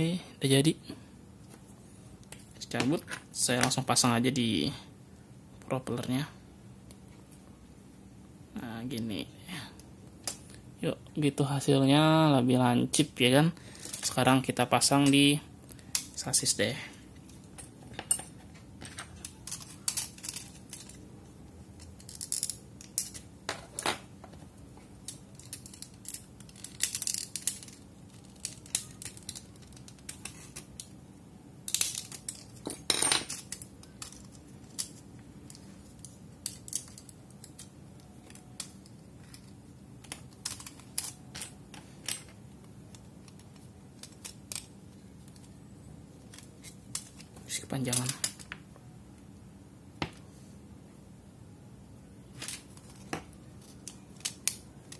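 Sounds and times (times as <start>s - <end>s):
small plastic clicks and rattles: 25.0s - 30.9s.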